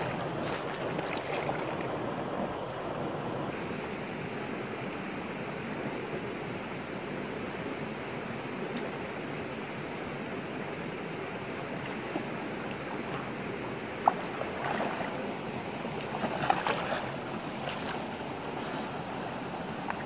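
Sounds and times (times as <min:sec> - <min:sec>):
person wading and splashing: 0:00.0 - 0:02.0, 0:11.7 - 0:19.0
stream water rushing: 0:00.0 - 0:20.0.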